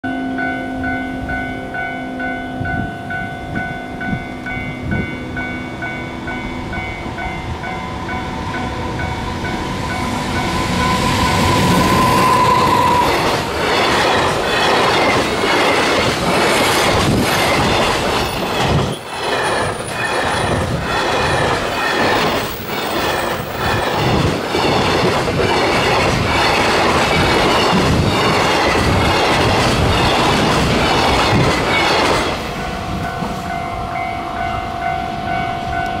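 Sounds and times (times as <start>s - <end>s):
level-crossing alarm ringing: 0.0s - 16.1s
freight train passing: 0.0s - 36.0s
wheels clacking over rail joints: 7.1s - 33.5s.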